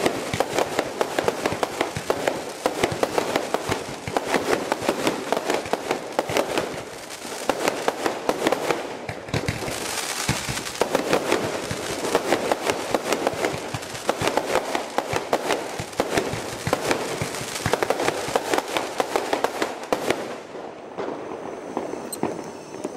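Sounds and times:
firework bursting pops: 9.0 - 12.0.

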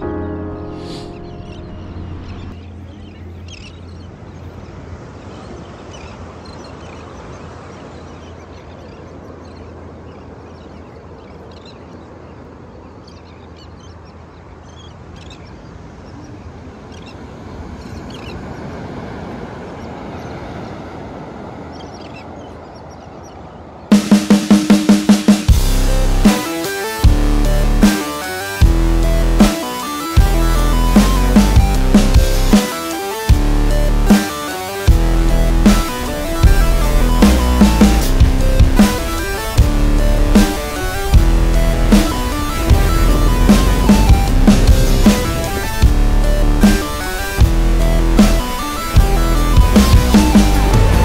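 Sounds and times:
calm sea wash at shore: 0.0 - 25.6, 27.8 - 28.6, 32.4 - 51.0
high bird chirps: 0.2 - 4.6
drum-led music: 23.9 - 51.0.

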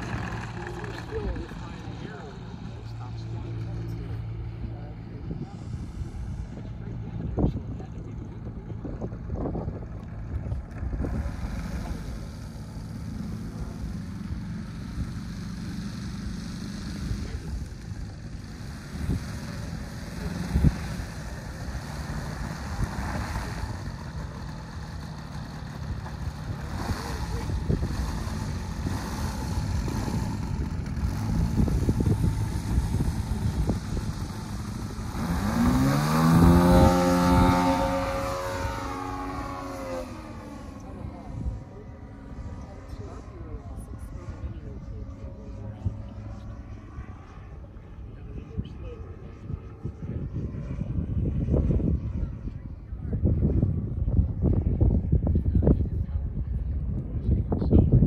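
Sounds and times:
model airplane engine running: 0.0 - 58.0.

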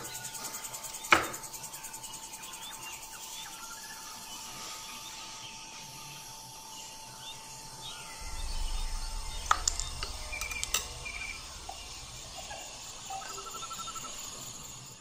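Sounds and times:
birds chirping: 0.0 - 15.0
insects: 0.0 - 15.0
steady thin tone: 7.6 - 14.9
low rumble: 7.8 - 14.5.

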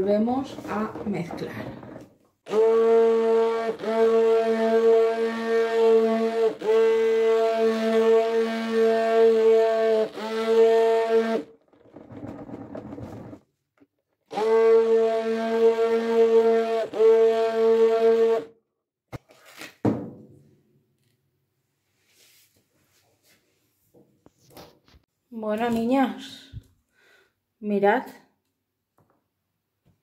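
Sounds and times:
immersion blender buzzing: 0.4 - 13.4, 14.2 - 18.5.

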